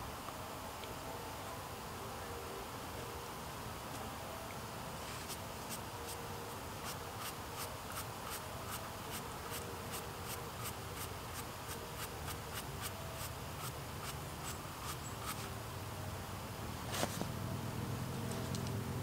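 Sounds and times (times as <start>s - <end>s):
brush scrubbing mushroom: 6.8s - 15.5s.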